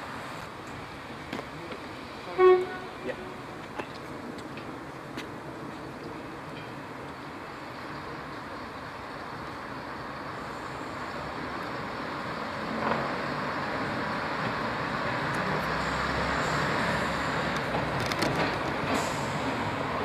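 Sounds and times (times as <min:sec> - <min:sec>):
diesel train engines working hard: 0:00.0 - 0:20.0.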